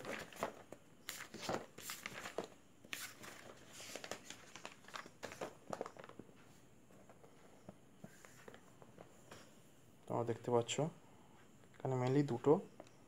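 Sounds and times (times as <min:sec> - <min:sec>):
book pages rustling: 0:00.0 - 0:09.2.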